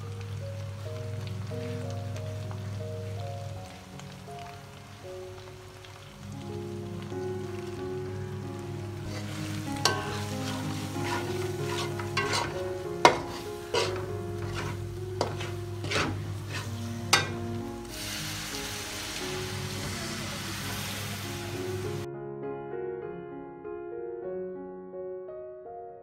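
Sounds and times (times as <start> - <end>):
onions sizzling in a pot: 0.0 - 22.1
soft background music: 0.0 - 26.0
metal spatula scraping pot: 9.1 - 17.4.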